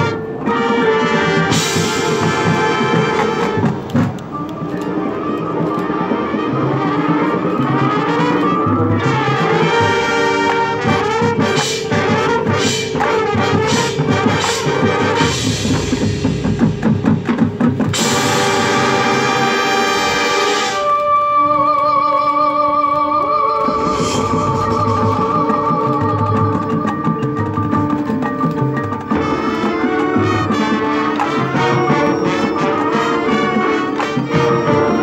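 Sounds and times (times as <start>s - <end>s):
brass holding loud bright chord: 0.0s - 4.0s, 6.0s - 16.8s, 17.9s - 21.1s, 29.2s - 35.0s
marching band playing: 0.0s - 21.5s, 23.6s - 35.0s
heavy drum hits: 12.5s - 18.9s.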